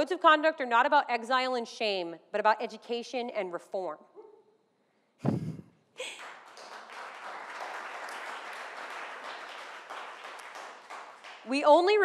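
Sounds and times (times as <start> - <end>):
audience applauding: 6.0 - 11.5.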